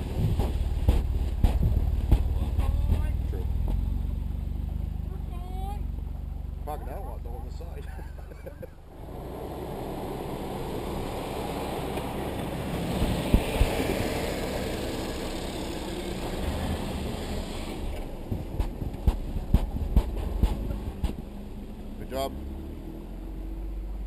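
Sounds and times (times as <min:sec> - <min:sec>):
sharp knocks: 0:00.0 - 0:03.9, 0:18.3 - 0:21.3
off-road vehicle engine running: 0:00.0 - 0:24.0
tyres churning snow: 0:00.0 - 0:24.0.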